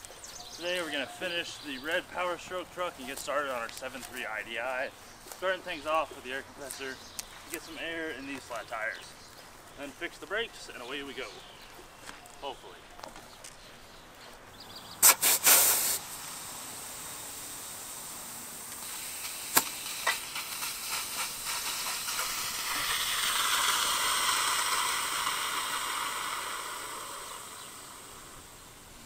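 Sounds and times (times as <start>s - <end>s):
compressed air hissing: 15.0s - 29.0s.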